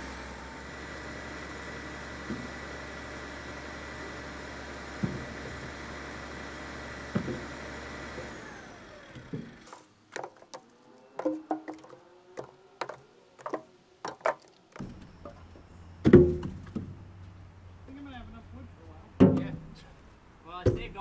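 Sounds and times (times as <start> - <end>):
firewood logs knocking: 5.0 - 5.8, 7.0 - 7.6, 9.1 - 17.0, 19.2 - 19.8, 20.6 - 21.0.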